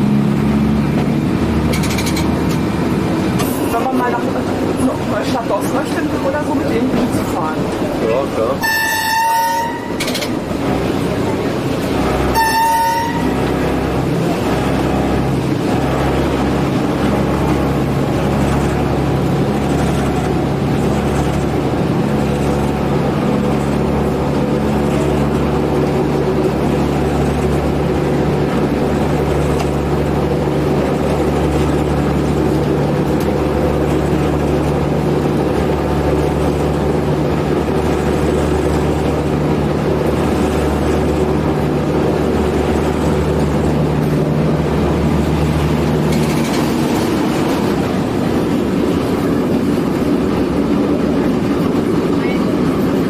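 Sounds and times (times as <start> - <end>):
diesel engine drone: 0.0 - 53.0
train wheels running on track: 0.0 - 53.0
train horn toot: 8.6 - 10.2, 12.2 - 13.7.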